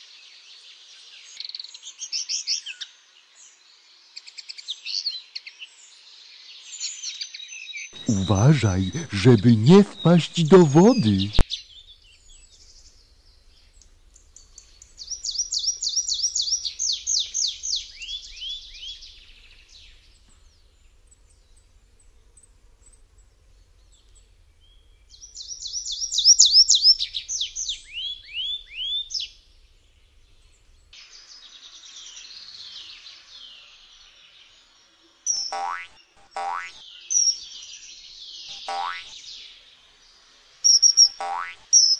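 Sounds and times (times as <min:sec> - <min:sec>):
songbird singing: 0:07.3 - 0:41.9.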